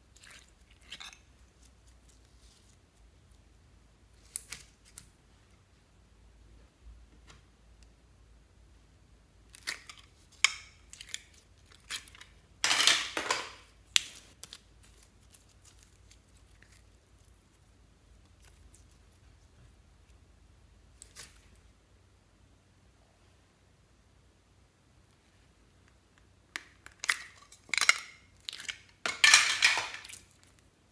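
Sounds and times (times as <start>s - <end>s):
slime peeling and squelching: 13.9s - 19.2s.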